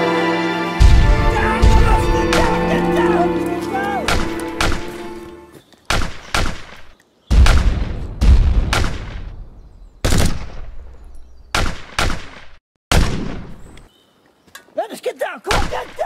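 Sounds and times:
deep boom: 0.8s - 2.8s, 7.3s - 11.0s.

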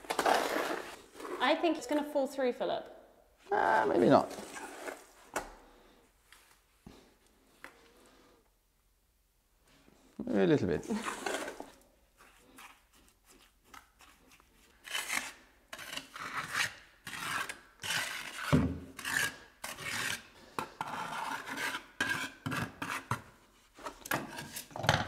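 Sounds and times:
trowel scraping wet concrete: 0.0s - 1.6s, 10.9s - 11.8s, 13.3s - 24.8s.

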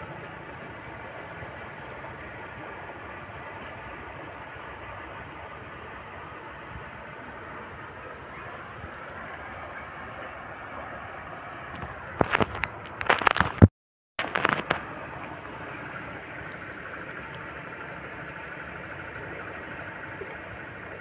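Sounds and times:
river water flowing: 0.0s - 13.6s, 14.2s - 21.0s
sharp crackling knocks: 11.8s - 14.9s.

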